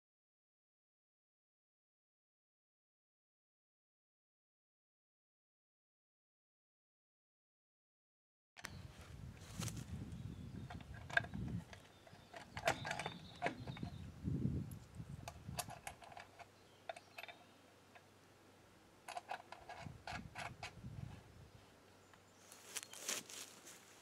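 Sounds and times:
dull handling rustle: 8.9s - 10.2s, 22.4s - 24.0s
wooden board knocks and clicks: 10.7s - 13.9s.

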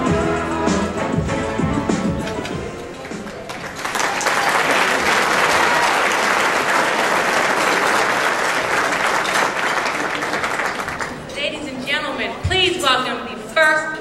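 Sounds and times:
audience applauding: 2.2s - 11.3s.

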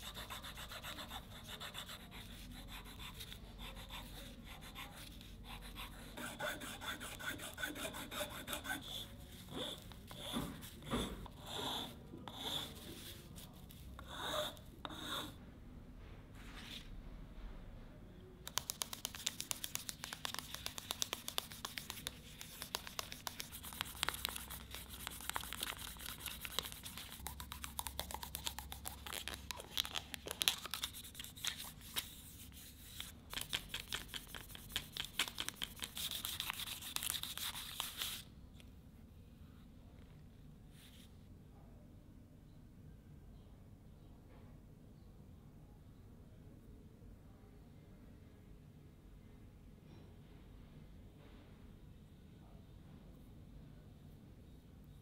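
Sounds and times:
file rasping on wood: 6.2s - 10.4s.

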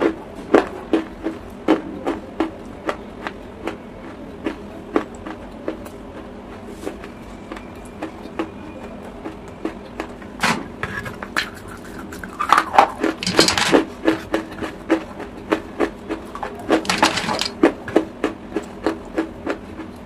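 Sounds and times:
chalk crunching while chewed: 11.1s - 16.9s.

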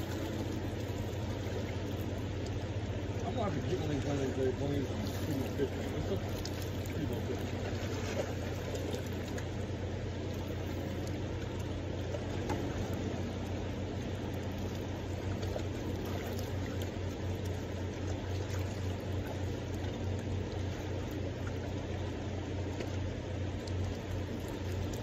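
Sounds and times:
fast river current rushing: 0.0s - 10.8s.

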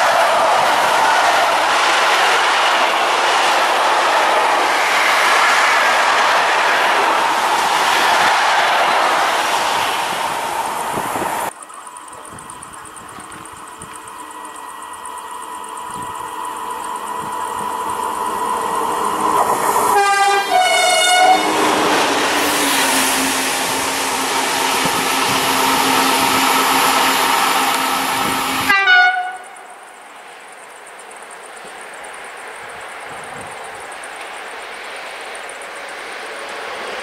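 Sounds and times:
train passing: 0.0s - 37.0s
two-tone train horn: 19.8s - 29.7s.

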